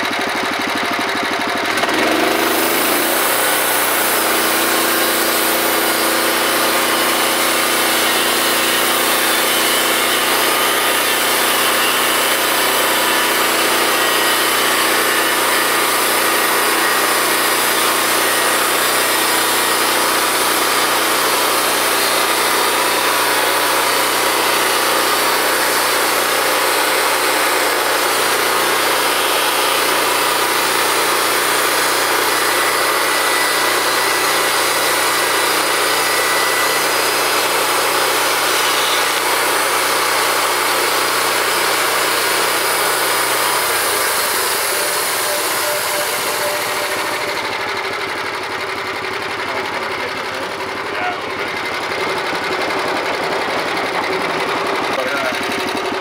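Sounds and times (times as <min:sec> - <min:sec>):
bandsaw mill engine under load: 0:00.0 - 0:56.0.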